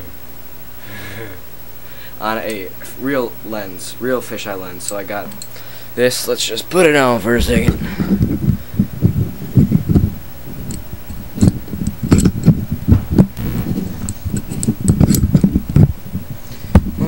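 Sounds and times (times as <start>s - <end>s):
thumps and knocks on camera body: 7.4s - 8.6s.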